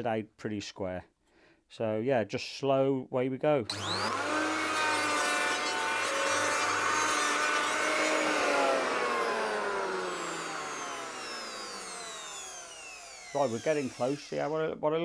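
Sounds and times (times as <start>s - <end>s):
electric planer shaving wood: 3.7s - 14.6s.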